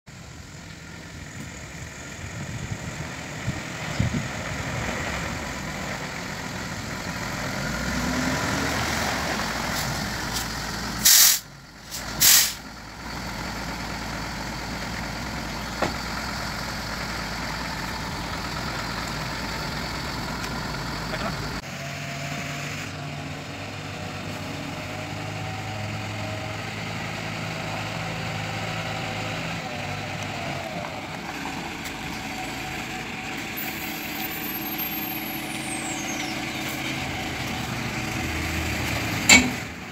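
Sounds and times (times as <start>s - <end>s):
diesel truck engine running: 0.1s - 39.9s
air hisses: 11.0s - 12.6s.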